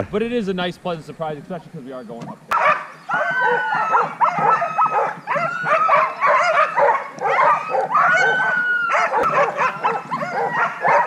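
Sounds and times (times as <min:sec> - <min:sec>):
sled dogs barking and yipping: 0:02.5 - 0:11.0.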